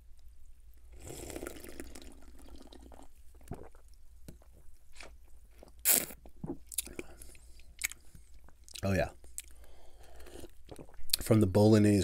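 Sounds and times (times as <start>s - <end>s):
slurping fizzy drink: 1.0s - 3.8s, 5.8s - 6.6s.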